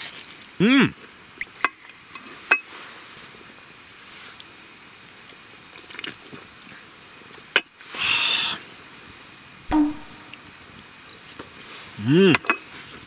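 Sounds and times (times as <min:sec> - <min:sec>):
sharp click: 0:09.7 - 0:10.4.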